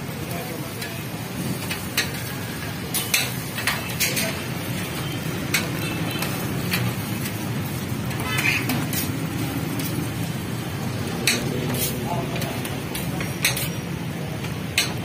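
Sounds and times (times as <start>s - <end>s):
eggs sizzling: 1.4s - 15.0s
metal spatula scraping on griddle: 1.6s - 4.6s, 5.2s - 10.1s, 11.2s - 14.0s.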